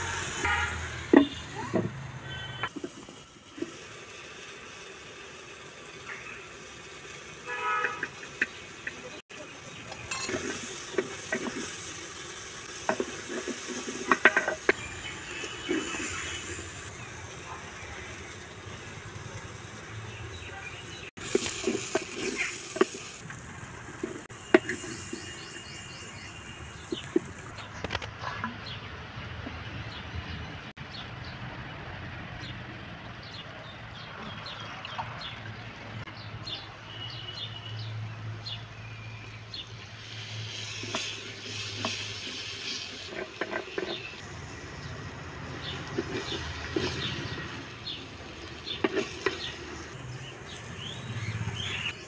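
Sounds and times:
chillies sizzling in hot oil: 0.0 - 52.0
wooden spoon scraping clay pot: 12.7 - 16.9, 21.2 - 23.3, 23.9 - 25.8, 40.5 - 44.2, 45.9 - 47.6.

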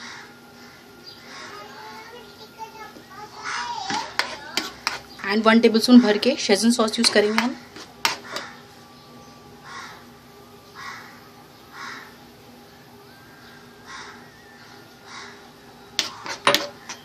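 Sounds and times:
harsh bird calls: 0.0 - 3.9, 7.6 - 17.0
faint steady hum: 0.0 - 17.0
metal spoon scraping frying pan: 3.9 - 5.2, 6.9 - 8.6, 16.0 - 17.0.

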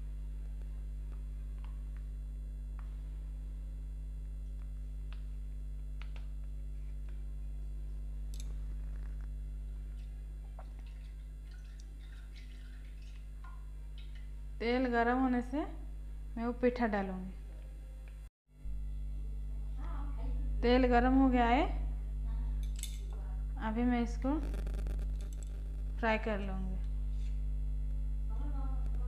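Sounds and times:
low electrical hum: 0.0 - 29.0
oil ticking and crackling: 8.3 - 14.4, 24.4 - 26.0.

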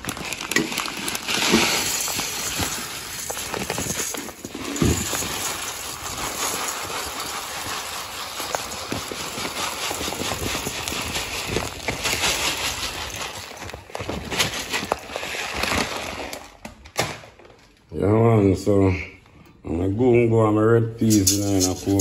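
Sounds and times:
rice pouring into metal pot: 0.0 - 14.0, 21.0 - 22.0.

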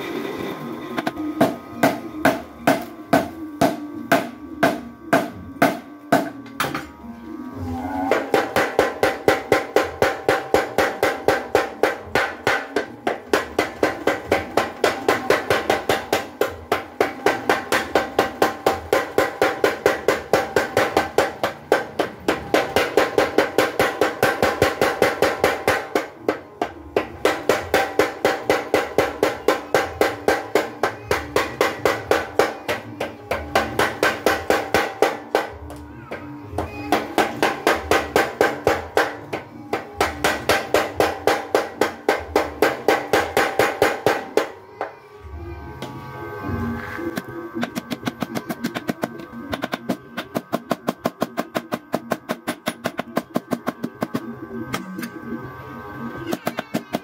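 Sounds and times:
power hammer pounding: 8.0 - 35.8.

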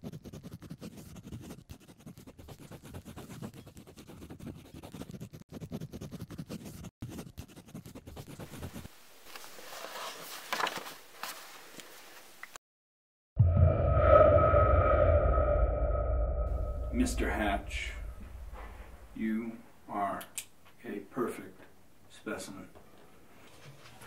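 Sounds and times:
marker scratching on paper: 0.0 - 8.9
paper rustling: 8.4 - 12.1.

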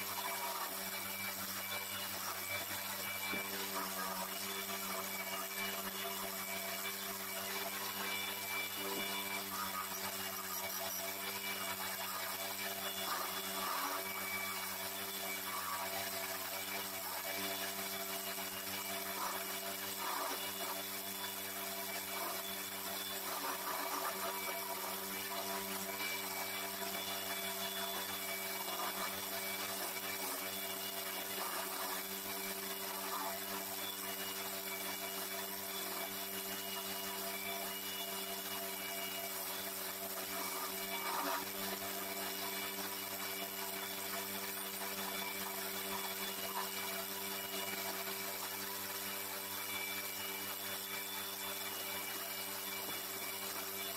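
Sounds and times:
chisel scraping spinning wood: 0.0 - 53.9
lathe motor humming: 0.0 - 53.9.

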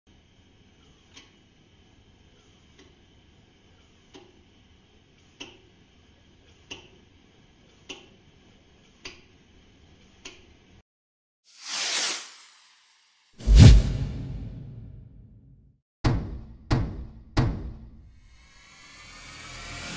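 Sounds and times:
loud whoosh: 13.4 - 15.4.

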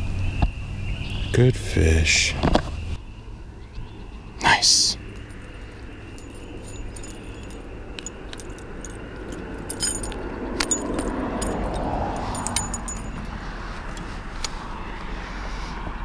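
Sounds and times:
fishing lure metallic clinks: 5.1 - 13.3.

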